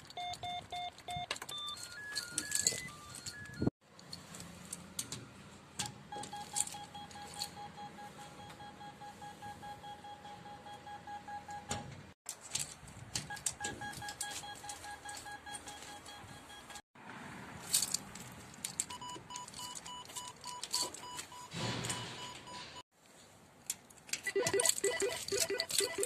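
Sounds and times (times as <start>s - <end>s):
intercom panel beeping: 24.3s - 26.0s.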